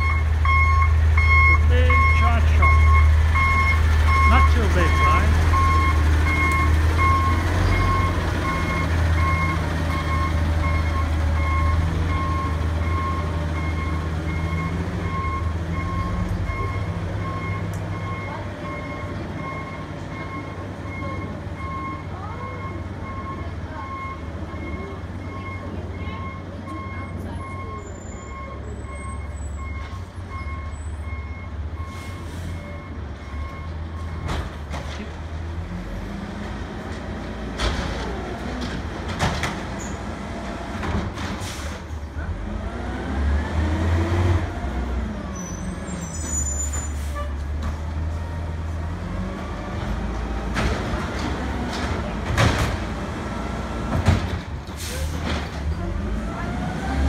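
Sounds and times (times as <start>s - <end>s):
backup alarm beeping: 0.0s - 34.3s.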